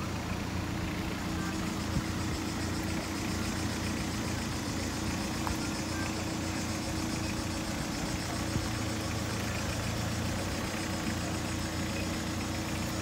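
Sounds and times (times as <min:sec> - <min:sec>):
van engine low hum: 0:00.0 - 0:13.0.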